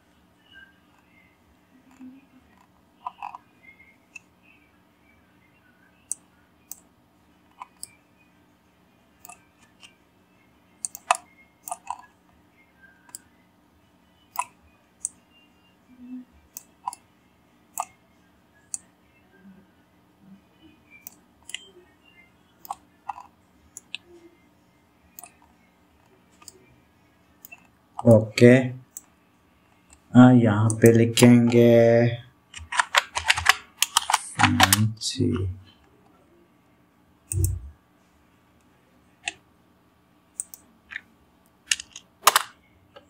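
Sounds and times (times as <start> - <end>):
mouse and keyboard clicking: 2.6 - 3.4, 7.6 - 8.0, 10.8 - 12.1, 14.3 - 15.2, 17.8 - 18.0, 21.0 - 21.7, 22.6 - 24.1, 26.4 - 26.6, 32.5 - 34.8, 37.3 - 37.6, 41.7 - 43.0.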